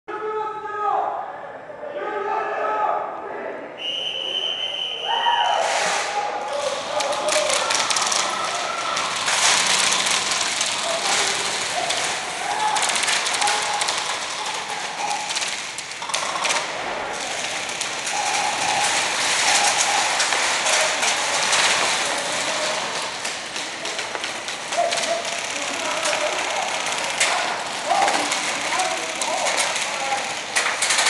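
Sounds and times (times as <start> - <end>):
airsoft guns firing rapidly: 6.5 - 31.0.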